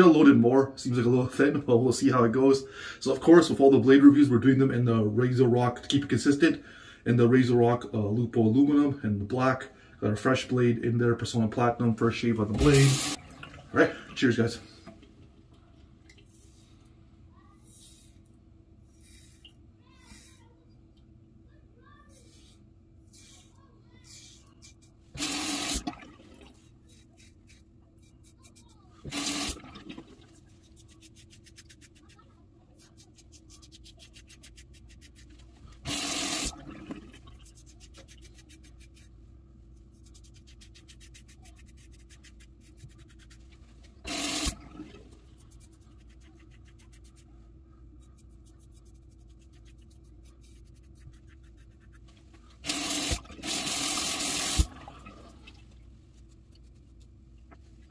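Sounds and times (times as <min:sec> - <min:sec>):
tap water running: 0:12.4 - 0:15.3, 0:25.2 - 0:26.7, 0:29.0 - 0:31.1, 0:35.7 - 0:38.1, 0:43.8 - 0:45.5, 0:52.6 - 0:55.8
razor scraping through stubble: 0:30.6 - 0:36.4.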